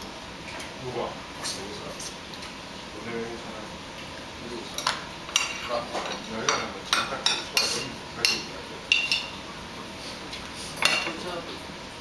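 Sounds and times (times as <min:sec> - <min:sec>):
chopsticks clinking on ceramic bowls: 0:04.8 - 0:09.3.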